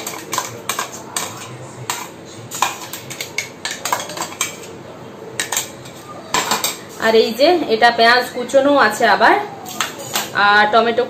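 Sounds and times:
spoon clinking against bowl: 0:00.0 - 0:04.7.

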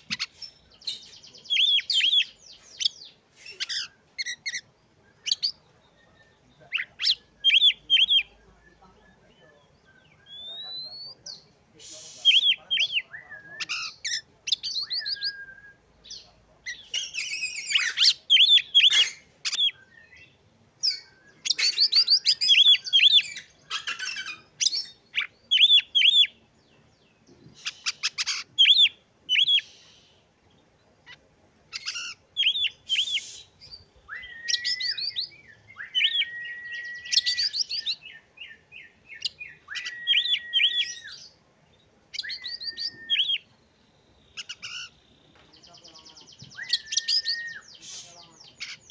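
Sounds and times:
songbird singing: 0:00.0 - 0:48.9.

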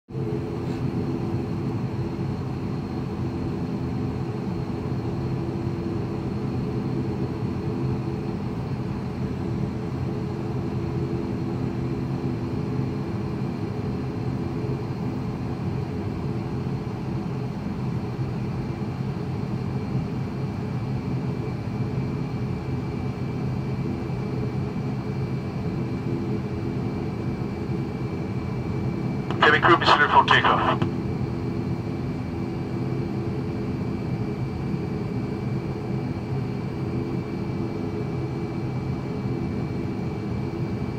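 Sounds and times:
turboprop engines droning: 0:29.3 - 0:31.0.

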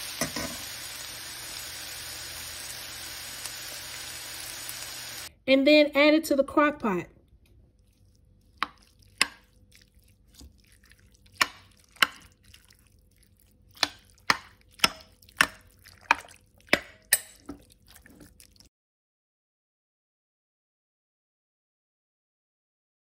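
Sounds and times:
soft wet stirring: 0:07.2 - 0:18.7.

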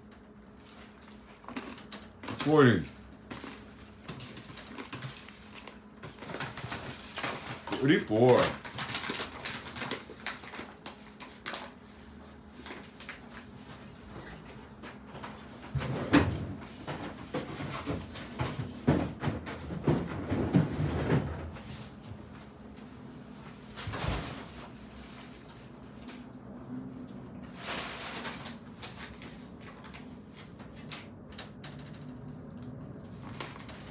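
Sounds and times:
paper bag crinkling: 0:00.5 - 0:15.4, 0:27.4 - 0:31.5, 0:33.0 - 0:33.9
rustles and knocks: 0:12.6 - 0:22.5.

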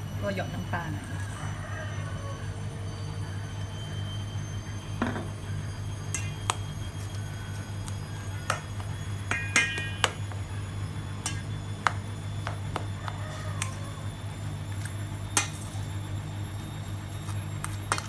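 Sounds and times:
steady low hum: 0:00.0 - 0:18.0
rice paddle clinking in steel bowl: 0:06.1 - 0:06.6, 0:09.3 - 0:10.3.

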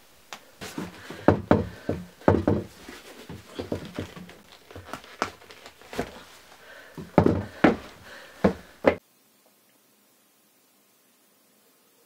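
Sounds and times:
boots knocking on wooden floorboards: 0:00.6 - 0:06.2, 0:07.0 - 0:09.0
cloth rustling: 0:00.6 - 0:09.0.

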